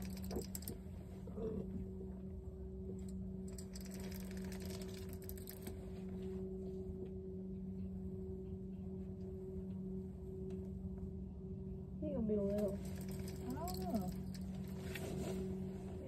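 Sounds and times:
fishing reel clicking: 0.0s - 0.8s, 3.5s - 5.8s, 12.6s - 14.5s
steady low hum: 0.0s - 16.0s.

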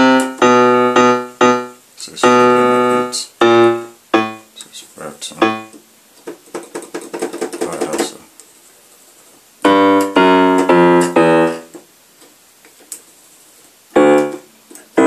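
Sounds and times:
electronic keyboard piano notes: 0.0s - 4.6s, 5.3s - 5.8s, 9.6s - 11.8s, 13.9s - 15.0s.

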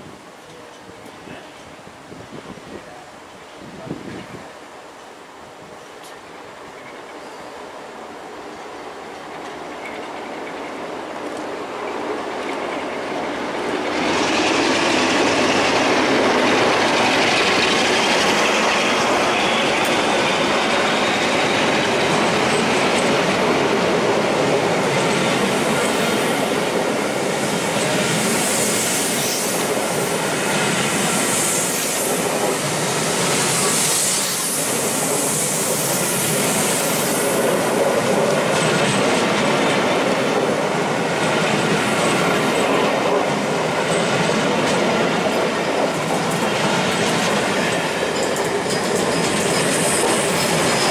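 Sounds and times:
train wheels running on rail: 0.0s - 50.9s
wheels clattering over rail joints: 41.4s - 50.9s
high wheel squeal: 47.7s - 50.9s.

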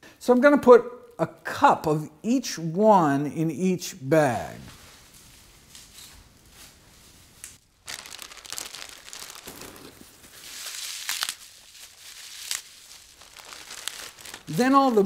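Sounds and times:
kale leaves crinkling and rustling: 4.7s - 15.0s.

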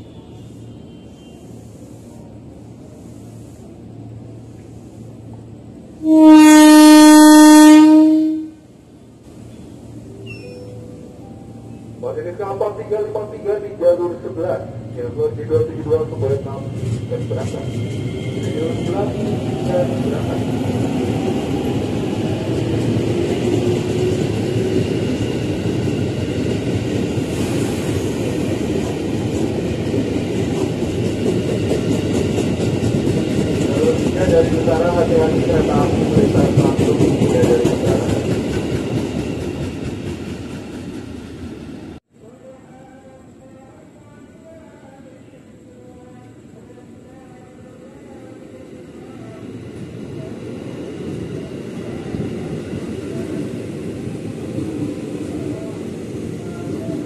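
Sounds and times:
train horn blast: 6.0s - 8.6s
train wheels rumbling on rail: 12.4s - 42.1s, 48.8s - 57.0s.

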